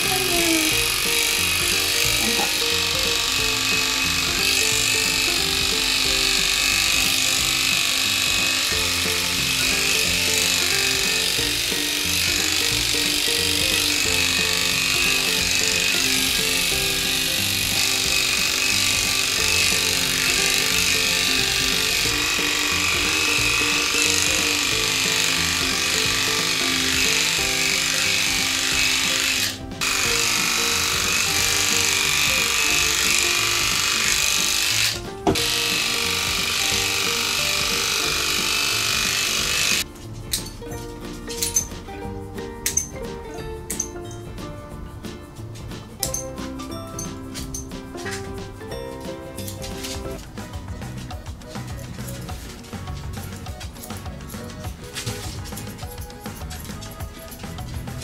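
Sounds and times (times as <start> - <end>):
electric clipper buzzing: 0.0 - 39.9
background music: 0.0 - 58.0.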